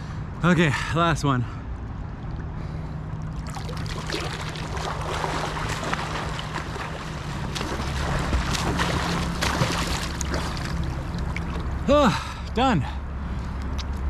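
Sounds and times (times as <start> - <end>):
steady low hum: 0.0 - 14.0
pool water splashing: 2.4 - 12.1.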